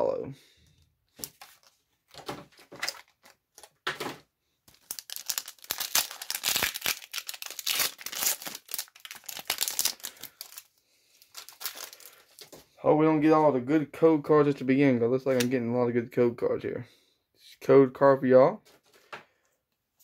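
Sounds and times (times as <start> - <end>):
foil wrapper tearing and crinkling: 1.2 - 1.7, 4.7 - 12.6.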